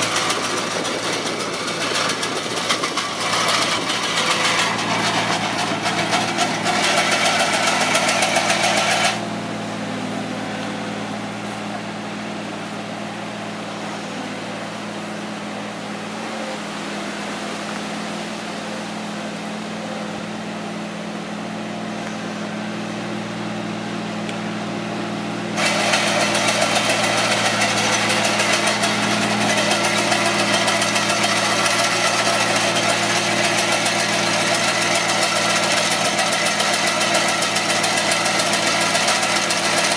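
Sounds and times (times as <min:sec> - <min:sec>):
hedge trimmer cutter clattering: 0:00.0 - 0:09.2, 0:25.6 - 0:39.9
loader engine running: 0:00.0 - 0:39.9.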